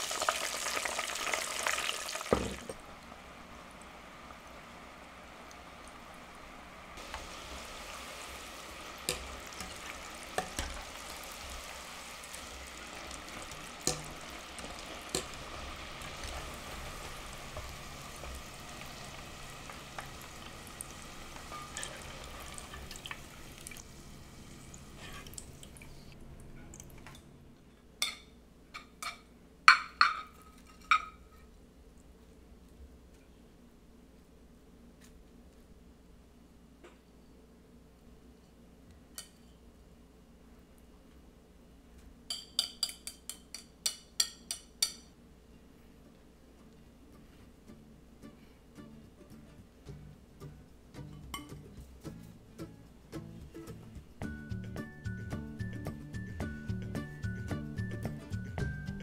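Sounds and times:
fries sizzling in oil: 0.0 - 26.1.

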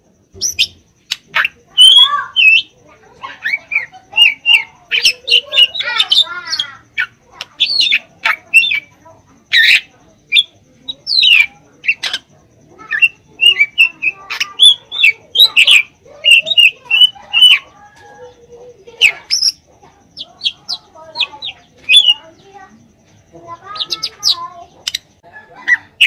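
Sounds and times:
bird singing whistles and chirps: 0.4 - 2.8, 20.2 - 22.5.

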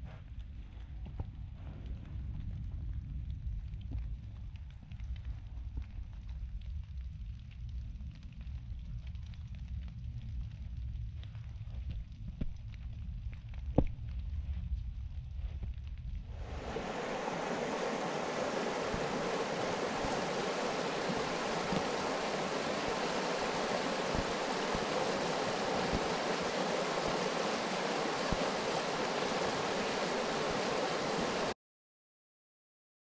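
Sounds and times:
river rushing over gravel: 16.4 - 31.6.

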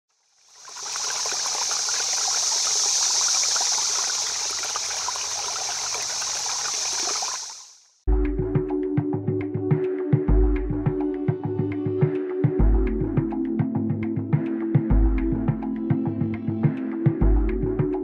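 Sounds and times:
stream water rushing: 0.5 - 7.8
music: 8.1 - 18.0.

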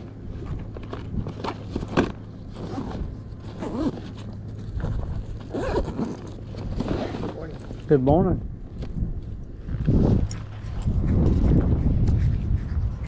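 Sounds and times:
handling scraping and rustling: 0.0 - 8.1
low hum: 0.0 - 13.0.

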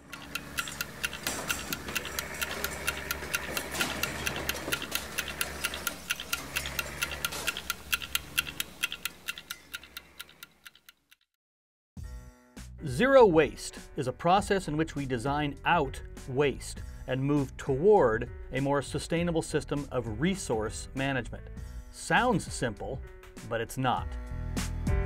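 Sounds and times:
rapid clock-like ticking: 0.0 - 11.3.

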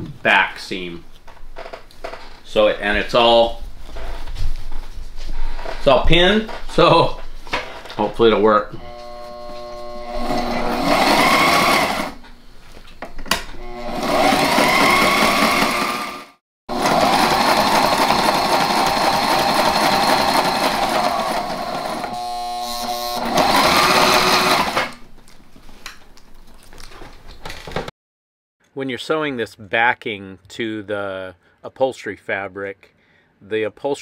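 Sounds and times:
electric sewing machine stitching: 8.8 - 12.3, 13.5 - 25.0.

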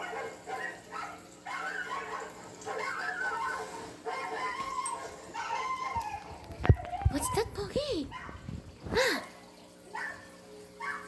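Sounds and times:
dog whining and yipping: 0.6 - 8.4.

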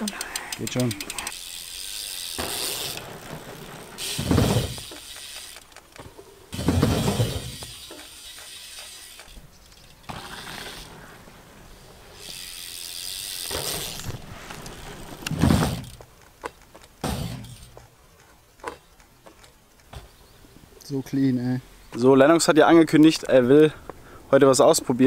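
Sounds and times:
freewheel hub ticking: 0.0 - 6.0
bike tyres rolling on dirt: 0.0 - 20.4
heavy landing thumps: 2.4 - 5.0, 6.0 - 7.8, 15.2 - 16.0, 17.0 - 17.9.

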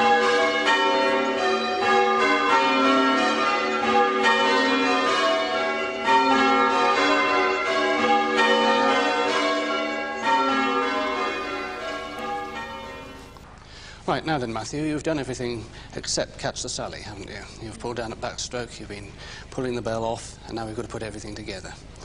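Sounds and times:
church bells change ringing: 0.0 - 13.4.

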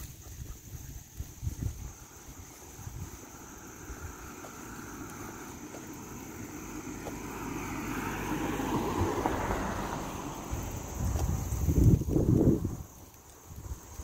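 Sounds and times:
wind on microphone: 0.0 - 6.0, 10.4 - 14.0.

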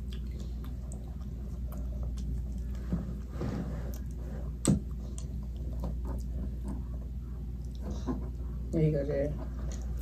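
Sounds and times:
eating at a table: 0.0 - 10.0
steady low hum: 0.0 - 10.0.

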